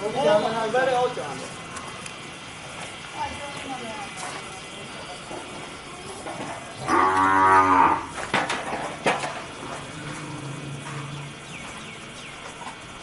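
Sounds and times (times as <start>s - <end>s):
water buffalo mooing: 6.8s - 8.1s.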